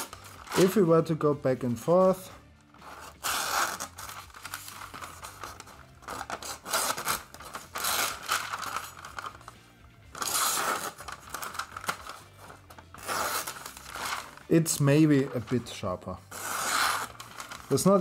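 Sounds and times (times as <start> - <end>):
paper rustling: 0.0 - 1.1, 2.7 - 18.0
knife slicing paper: 2.8 - 9.3, 10.2 - 14.4, 16.3 - 18.0.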